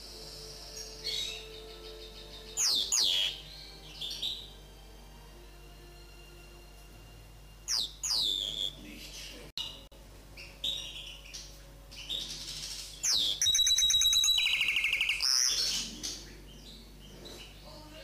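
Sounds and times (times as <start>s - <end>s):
bird singing whistled notes: 0.3s - 4.5s, 7.7s - 17.8s
bird trills: 0.3s - 4.6s, 7.7s - 17.7s.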